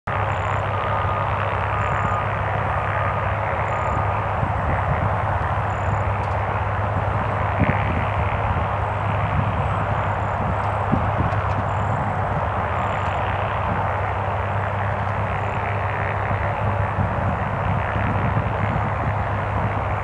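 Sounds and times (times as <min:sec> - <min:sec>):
light airplane engine idling: 0:00.1 - 0:20.0.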